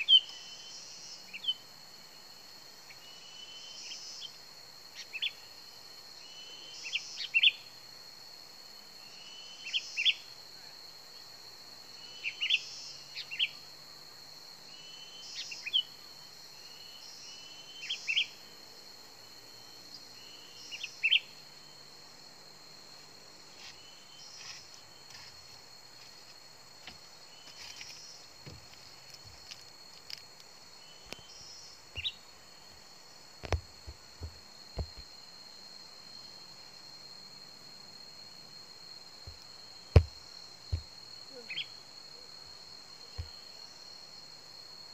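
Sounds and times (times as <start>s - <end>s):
high insect drone: 0.0s - 44.9s
sharp knocks: 39.9s - 40.9s.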